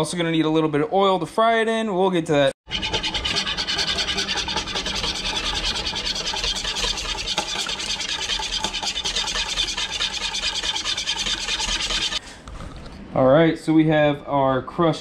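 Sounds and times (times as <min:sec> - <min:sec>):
whisk beating eggs in bowl: 0:02.7 - 0:12.2.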